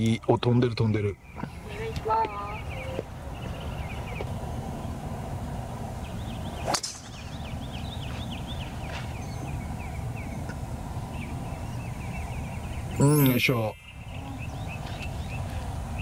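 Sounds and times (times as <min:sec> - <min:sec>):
golf driver striking ball: 0:06.6 - 0:07.5.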